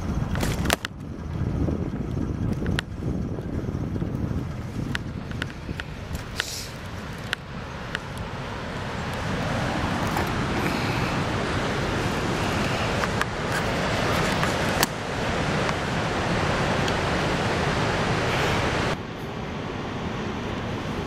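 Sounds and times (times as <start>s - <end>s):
wind on microphone: 0.0s - 21.0s
ocean surf breaking: 4.5s - 21.0s.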